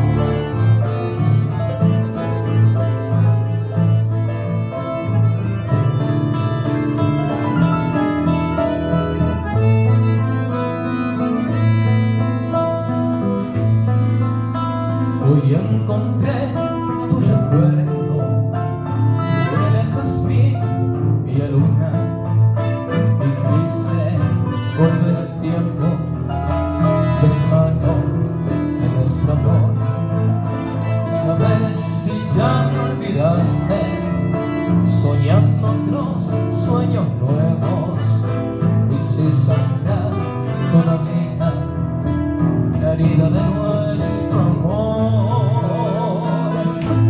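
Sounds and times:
waltz on guitars accordion and keyboard: 0:00.0 - 0:47.0
man singing: 0:14.9 - 0:47.0.

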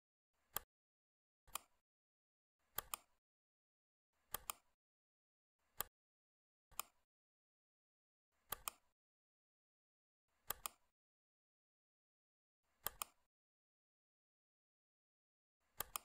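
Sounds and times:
computer mouse clicking: 0:00.5 - 0:00.7, 0:01.5 - 0:01.8, 0:02.7 - 0:03.2, 0:04.3 - 0:04.8, 0:06.7 - 0:07.0, 0:08.5 - 0:08.9, 0:10.4 - 0:10.9, 0:12.8 - 0:13.3, 0:15.6 - 0:16.0.

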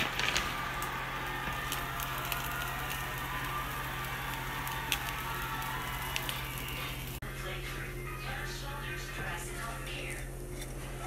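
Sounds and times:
patty sizzling in a frying pan: 0:00.0 - 0:07.2.

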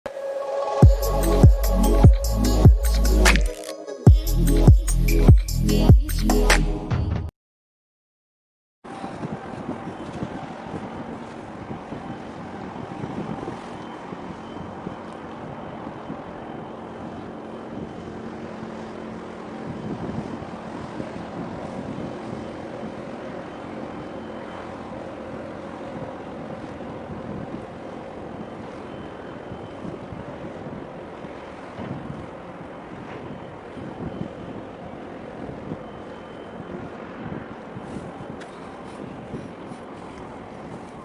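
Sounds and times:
motorboat engine humming: 0:00.1 - 0:03.6, 0:08.9 - 0:41.0
waves: 0:08.9 - 0:41.0
wind buffeting microphone: 0:08.9 - 0:41.0.

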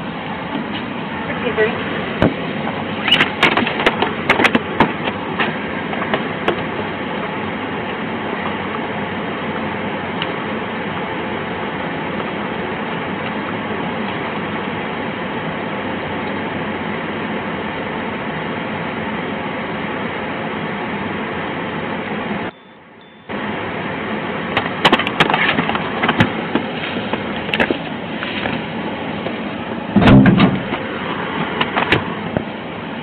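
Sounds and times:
car engine idling: 0:00.0 - 0:33.0
climate fan blowing: 0:00.0 - 0:33.0
knocks and clatters inside vehicle: 0:02.2 - 0:06.8, 0:24.5 - 0:28.6, 0:29.2 - 0:32.6.

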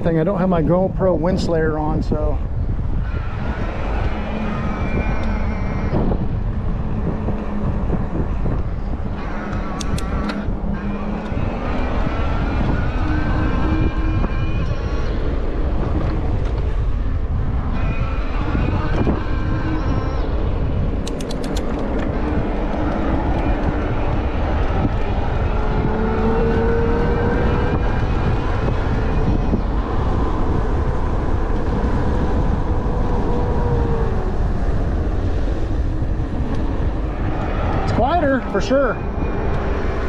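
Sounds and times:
wind buffeting microphone: 0:00.0 - 0:40.0
quick run of clicks: 0:09.5 - 0:10.4, 0:21.0 - 0:22.4.

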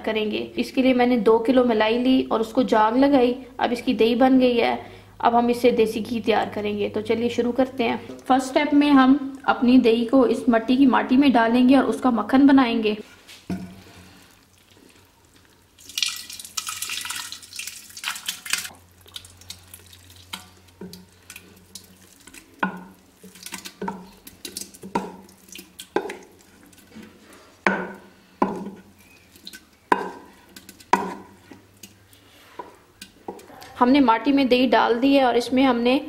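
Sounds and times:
spoon scraping and knocking bowl: 0:22.6 - 0:31.7.

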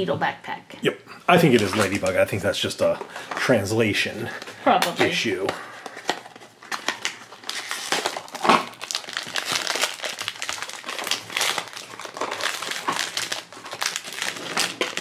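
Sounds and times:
foil bag crinkling: 0:01.4 - 0:15.0.

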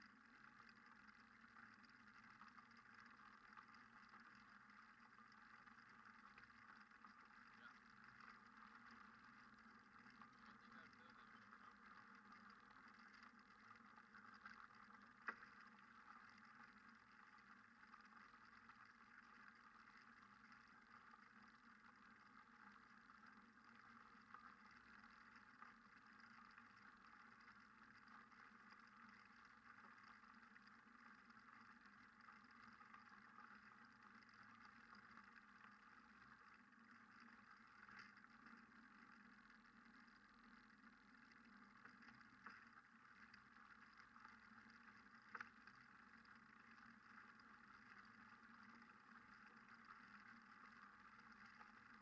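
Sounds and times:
faint steady hiss: 0:00.0 - 0:52.0
click: 0:45.3 - 0:45.8.

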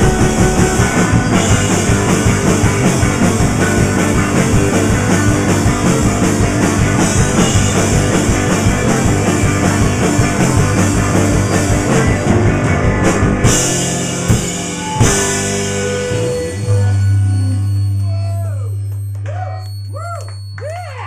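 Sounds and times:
fast drumming: 0:00.0 - 0:16.5
electric guitar: 0:00.0 - 0:19.8.

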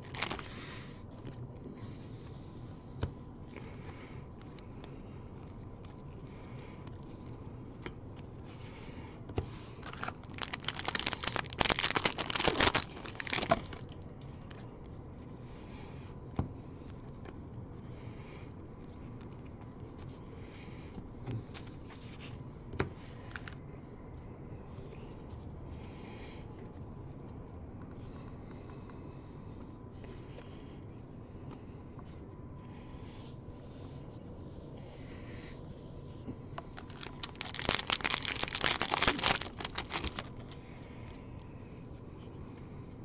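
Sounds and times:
foil wrapper tearing and crinkling: 0:00.0 - 0:00.7, 0:09.8 - 0:14.0, 0:36.8 - 0:40.5.

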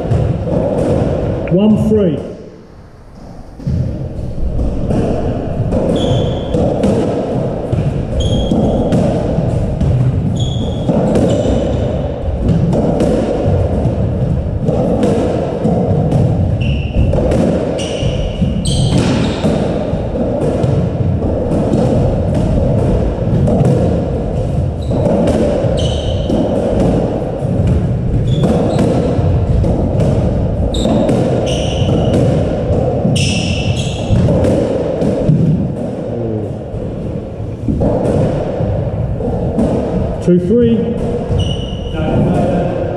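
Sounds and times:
squash ball knocking: 0:00.0 - 0:01.5, 0:03.6 - 0:42.9
shoe squeaks on court floor: 0:05.8 - 0:06.6, 0:08.1 - 0:08.9, 0:10.3 - 0:12.1, 0:16.6 - 0:17.1, 0:17.8 - 0:19.4, 0:25.7 - 0:26.5, 0:28.2 - 0:29.1, 0:30.7 - 0:32.1, 0:33.1 - 0:34.2, 0:41.3 - 0:42.0.

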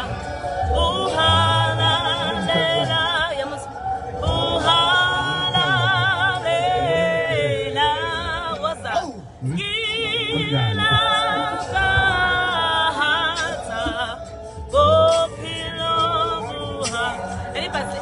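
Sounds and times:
recorded a cappella choir: 0:00.0 - 0:18.0
woman singing with vibrato: 0:00.0 - 0:18.0.

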